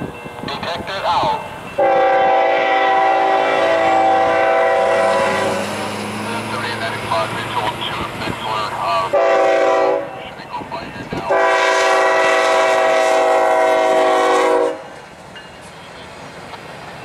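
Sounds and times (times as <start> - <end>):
train rumble and wheel clatter: 0.0 - 17.0
locomotive air horn blasts: 1.8 - 5.6, 9.1 - 10.2, 11.3 - 15.0.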